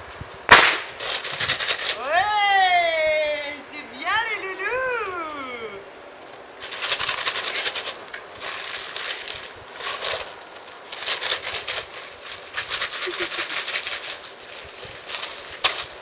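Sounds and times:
plastic tarp crinkling: 5.1 - 16.0.

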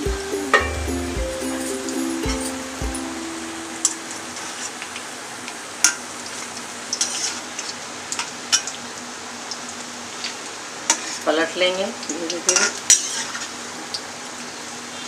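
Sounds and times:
fritter deep-frying in oil: 4.4 - 15.0.

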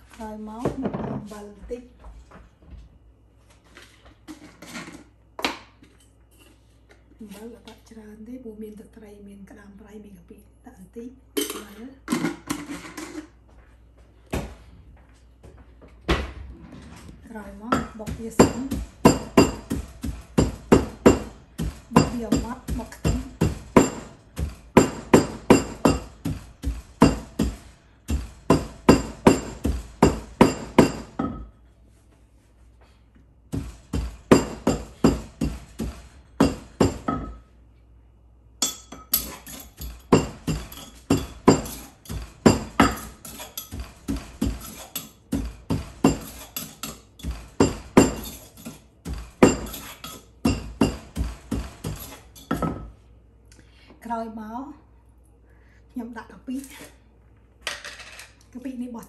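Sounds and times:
wooden pestle pounding in mortar: 17.7 - 31.4, 33.5 - 37.4, 39.2 - 52.8.

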